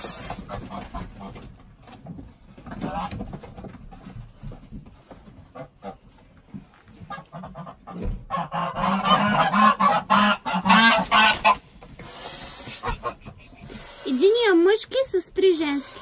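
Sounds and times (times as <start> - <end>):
scuffling and knocks: 0.3 - 8.4
geese honking: 7.1 - 14.6.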